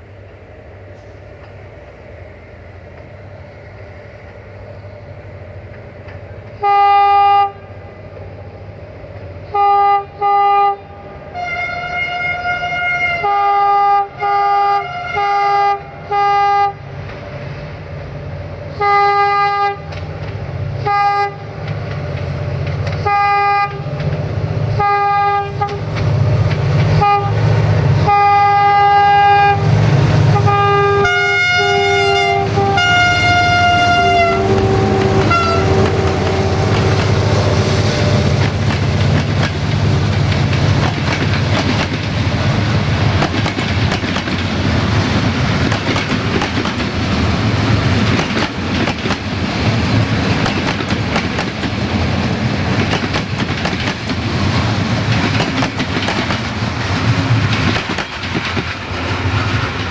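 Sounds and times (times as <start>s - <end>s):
locomotive horn toots: 6.6s - 7.8s, 9.5s - 16.8s, 18.7s - 20.0s, 20.8s - 21.5s, 23.0s - 24.0s, 24.7s - 26.0s, 26.9s - 38.4s
diesel engines rumbling: 7.4s - 59.9s.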